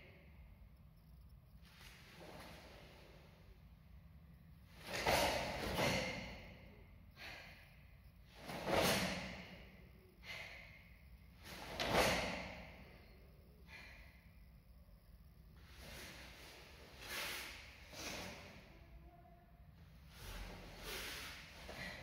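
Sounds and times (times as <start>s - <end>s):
forceful exhalations: 20.0s - 22.0s.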